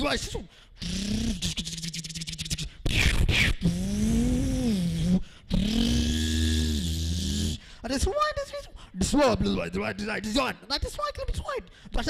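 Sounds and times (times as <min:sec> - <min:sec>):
person imitating battle sounds: 0:00.0 - 0:07.7.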